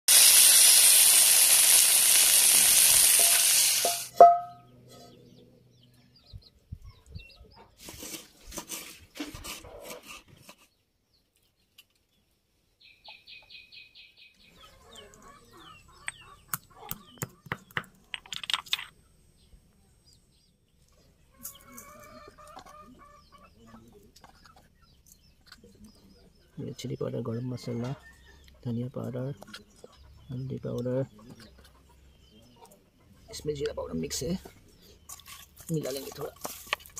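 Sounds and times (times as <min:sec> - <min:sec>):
chicken sizzling in hot oil: 0:00.1 - 0:04.2
sharp clink: 0:03.2 - 0:04.7
bird chirping: 0:03.8 - 0:07.8, 0:10.4 - 0:36.4.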